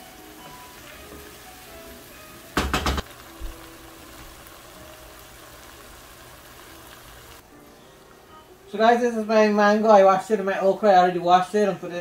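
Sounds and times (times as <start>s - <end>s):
curry hissing in a frying pan: 0.0s - 7.5s
sharp knocks: 2.6s - 3.0s.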